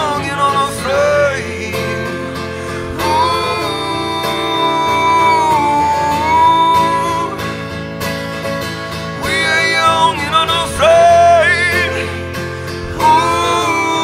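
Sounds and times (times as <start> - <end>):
acoustic guitar: 0.0 - 14.0
person singing long wordless note: 2.8 - 7.4, 9.4 - 14.0.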